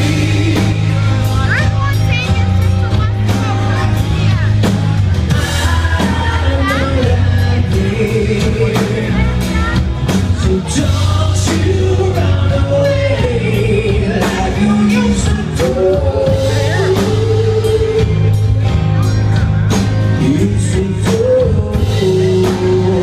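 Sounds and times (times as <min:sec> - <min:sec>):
live rock band playing: 0:00.0 - 0:23.0
man singing long notes: 0:05.4 - 0:09.5, 0:10.4 - 0:18.6, 0:20.2 - 0:23.0.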